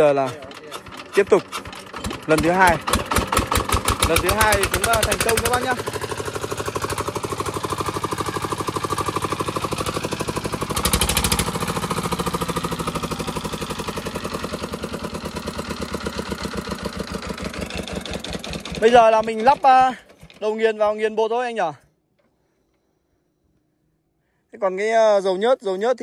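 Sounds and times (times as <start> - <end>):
diesel engine pulsing: 0.0 - 20.8.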